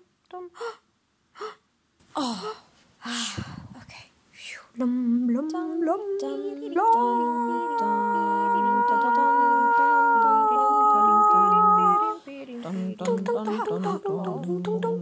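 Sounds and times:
voices humming a chord: 4.8s - 15.0s.

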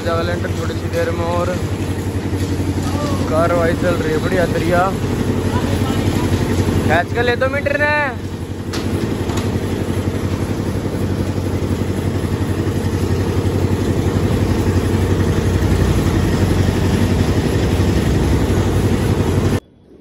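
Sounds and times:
concrete mixer engine running: 0.0s - 19.6s.

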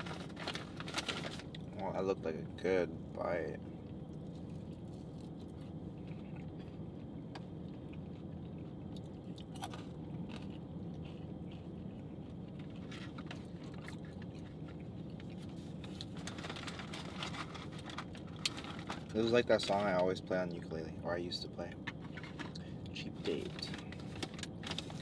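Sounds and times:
food packaging rustling: 0.0s - 1.7s, 15.3s - 19.9s, 23.3s - 25.0s
people chewing food: 3.6s - 18.8s.

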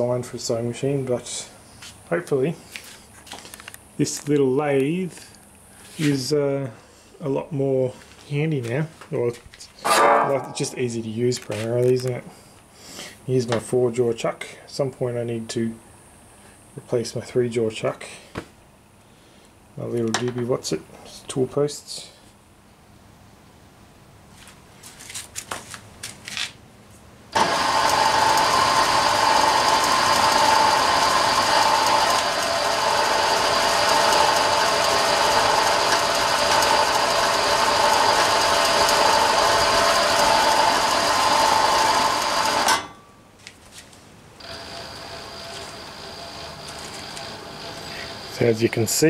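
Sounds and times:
faint steady running sound: 27.4s - 42.7s, 44.4s - 49.0s
lathe motor whirring with whine: 27.4s - 42.8s, 44.4s - 49.0s.

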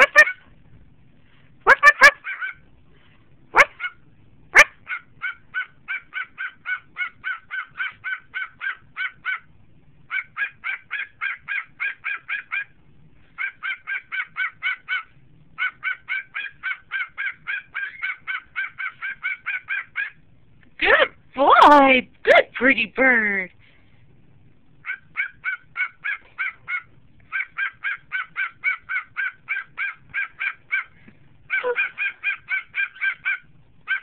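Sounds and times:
cockatiel bark-like calls: 0.0s - 0.4s, 1.7s - 2.6s, 3.6s - 9.5s, 10.1s - 12.8s, 13.4s - 20.2s, 24.8s - 34.0s.

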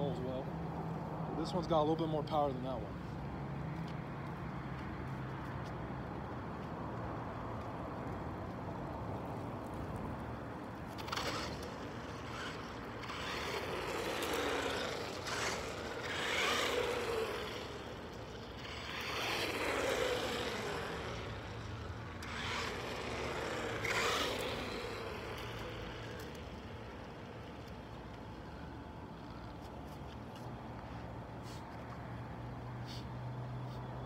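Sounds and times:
electric motor whining: 10.9s - 27.8s.

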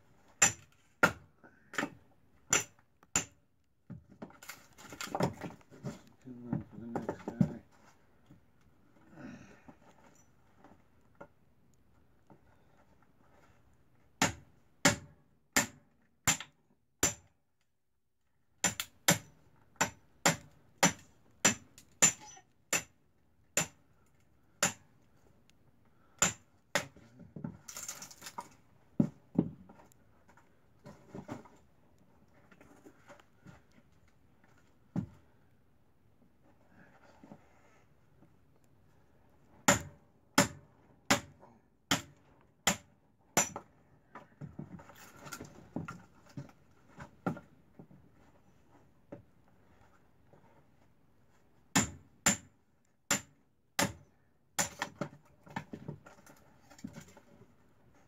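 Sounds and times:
hatchet chopping kindling: 0.4s - 3.4s, 14.2s - 17.3s, 18.6s - 23.0s, 23.6s - 23.8s, 24.6s - 24.9s, 26.2s - 27.0s, 39.7s - 41.3s, 41.9s - 42.1s, 42.7s - 43.6s, 51.8s - 52.5s, 53.1s - 54.0s.

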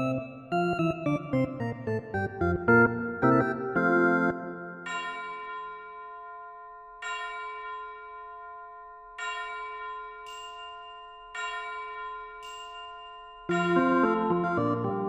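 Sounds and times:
music with moving melody: 0.0s - 4.9s, 13.5s - 15.0s
bell-like chime tones: 4.8s - 14.8s.

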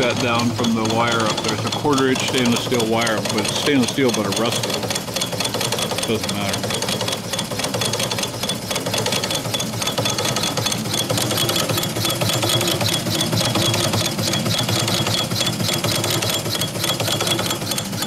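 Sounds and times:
steam engines clattering: 0.0s - 5.1s.

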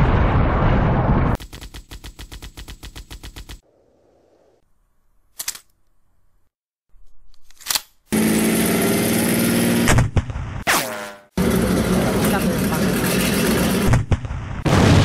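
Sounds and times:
tank engine running: 8.1s - 10.0s, 11.4s - 13.9s.

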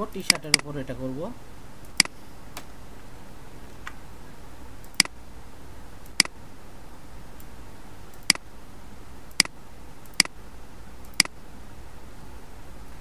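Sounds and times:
steady background hiss: 0.0s - 13.0s
computer mouse clicking: 4.8s - 5.2s, 6.0s - 6.4s, 8.1s - 8.4s, 9.3s - 10.4s, 11.0s - 11.4s.

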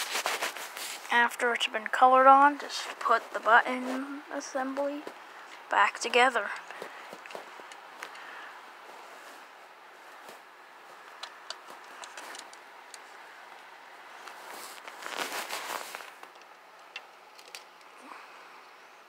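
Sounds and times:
rustling scrape: 0.0s - 1.4s, 2.6s - 5.2s, 8.8s - 12.6s, 14.1s - 16.3s
plastic parts clicking: 16.3s - 17.9s.

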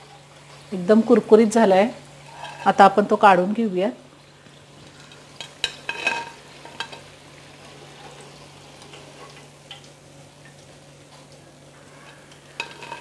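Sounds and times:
hot oil sizzling: 0.0s - 13.0s
skimmer clinking against pan: 12.6s - 13.0s.

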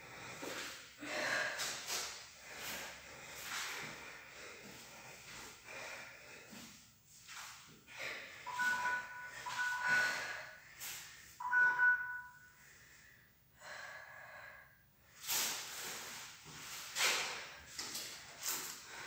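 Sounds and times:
woman breathing heavily: 0.0s - 19.0s
electronic timer beeping: 8.5s - 10.5s, 11.4s - 12.5s.

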